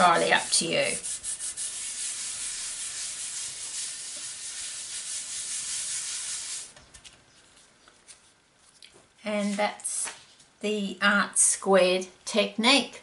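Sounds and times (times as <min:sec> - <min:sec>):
palms rubbing on cardstock: 0:00.0 - 0:06.8.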